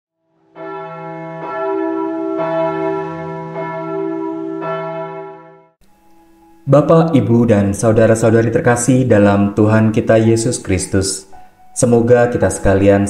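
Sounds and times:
bells ringing: 0.6s - 7.2s.

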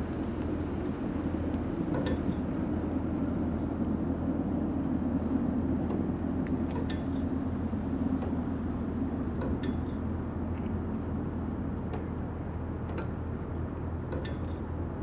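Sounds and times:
low rumble of distant engines: 0.0s - 15.0s.

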